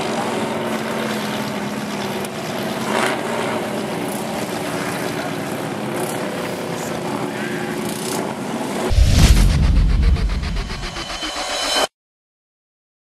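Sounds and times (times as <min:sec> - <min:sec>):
brief rush of noise: 0:08.9 - 0:11.9.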